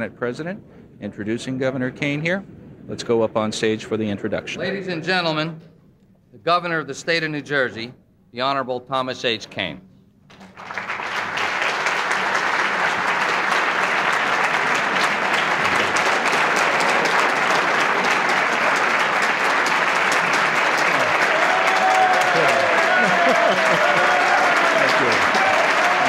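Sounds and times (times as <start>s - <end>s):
large audience applauding: 10.3s - 26.0s.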